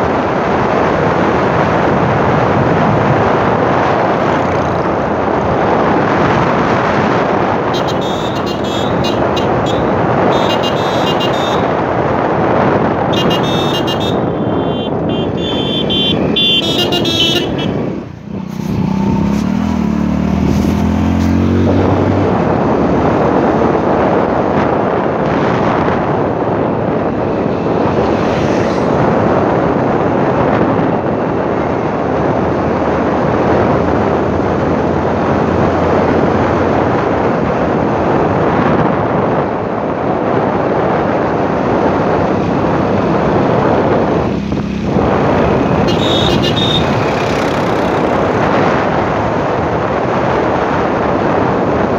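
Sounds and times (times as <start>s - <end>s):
wind rushing over microphone: 0.0s - 51.9s
motorcycle engine running: 44.4s - 48.4s.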